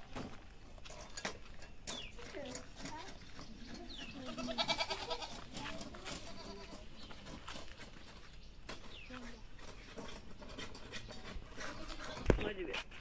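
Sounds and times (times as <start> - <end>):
goat bleating: 4.1 - 6.9, 11.5 - 12.3.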